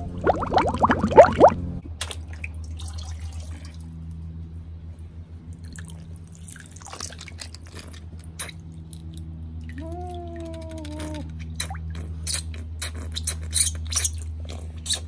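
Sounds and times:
low hum: 0.0s - 6.8s
water dripping and trickling: 2.1s - 4.1s, 5.5s - 12.0s.

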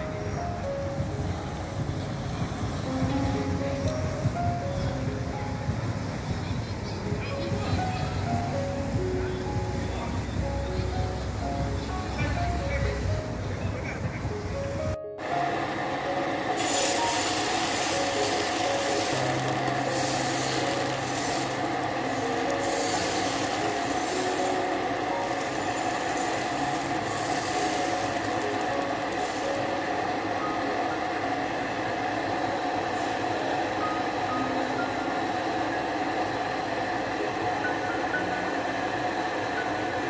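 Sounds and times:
batter sizzling on a griddle: 16.6s - 29.7s.

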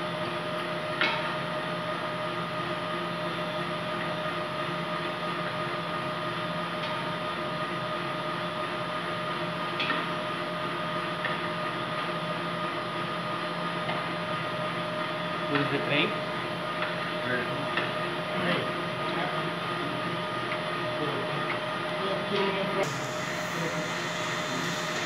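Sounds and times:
kitchen equipment humming: 13.0s - 25.0s.

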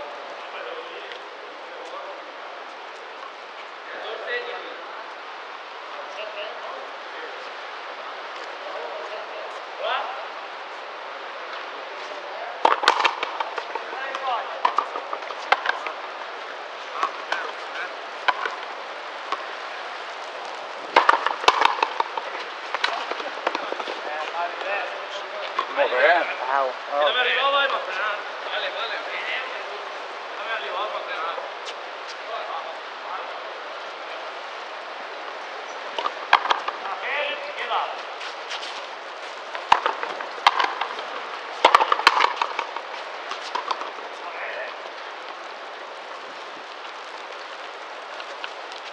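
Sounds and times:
ball struck by rackets: 12.6s - 16.0s, 17.0s - 17.6s, 18.2s - 18.7s, 20.9s - 24.0s, 36.0s - 36.9s, 39.5s - 44.0s.

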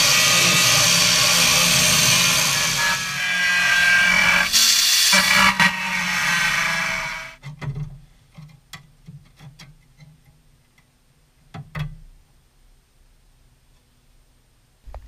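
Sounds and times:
angle grinder cutting steel: 0.0s - 7.4s
light irregular ticks and taps: 7.7s - 12.0s.

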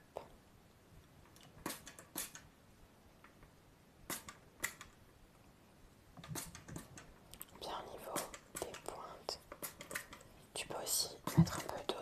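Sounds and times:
sharp hand crackles: 1.6s - 2.5s, 4.1s - 4.9s.

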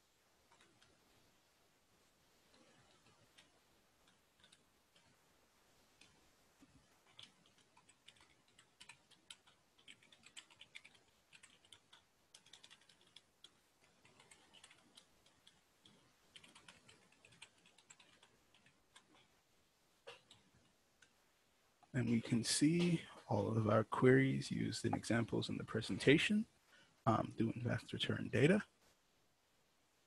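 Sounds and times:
computer keyboard typing: 0.5s - 1.0s, 2.5s - 5.2s, 6.0s - 19.3s.

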